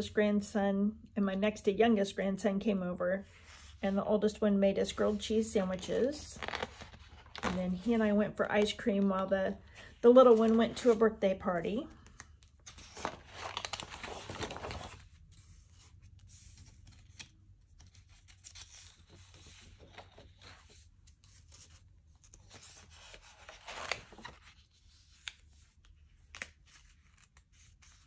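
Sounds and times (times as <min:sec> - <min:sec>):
paper pages rustling: 0:04.9 - 0:09.0, 0:09.7 - 0:11.2, 0:12.0 - 0:28.0.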